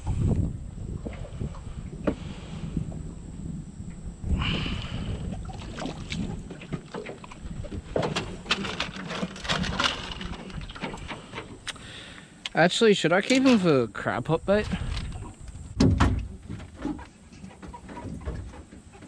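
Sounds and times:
water splashing: 0:05.2 - 0:11.4
fish flopping on metal boat floor: 0:05.5 - 0:11.7.

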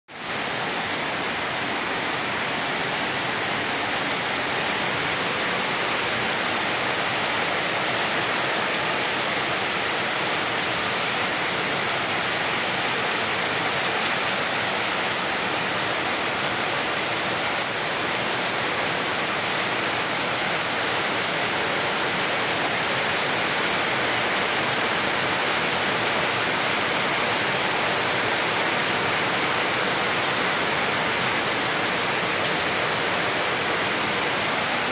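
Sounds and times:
heavy rain pouring: 0:00.1 - 0:34.9.

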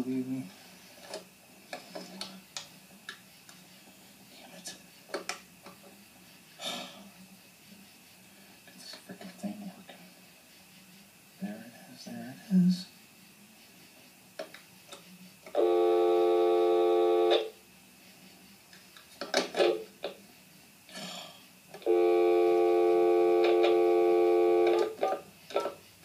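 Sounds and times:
electronic chord-like tone: 0:15.6 - 0:17.5, 0:21.9 - 0:24.9.

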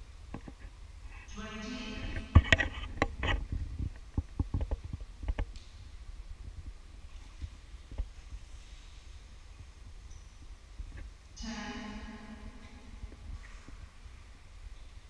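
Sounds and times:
low rumble: 0:10.7 - 0:14.7.

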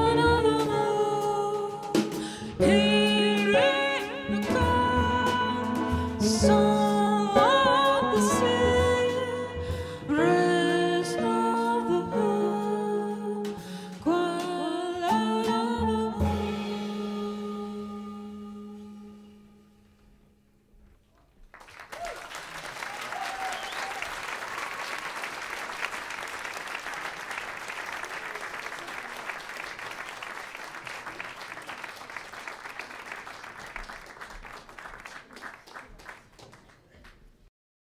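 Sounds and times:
audience applause: 0:21.4 - 0:37.2.

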